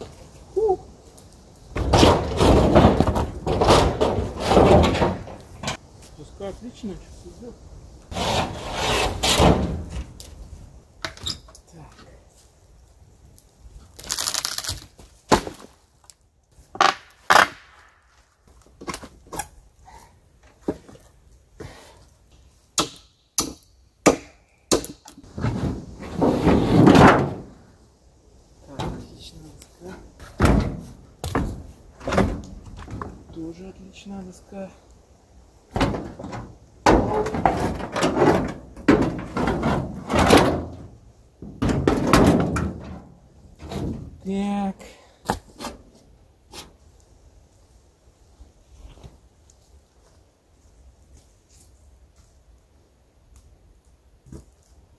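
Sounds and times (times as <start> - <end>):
wooden boards and metal clattering: 1.7 - 5.8, 8.1 - 10.3, 22.8 - 27.6, 30.2 - 33.4, 35.7 - 44.3
wooden planks cracking: 1.7 - 5.8, 13.9 - 19.5, 35.7 - 43.0.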